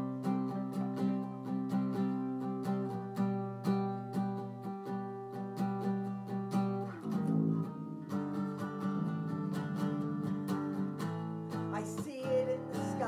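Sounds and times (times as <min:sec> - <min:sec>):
guitars strumming: 0:00.0 - 0:13.0.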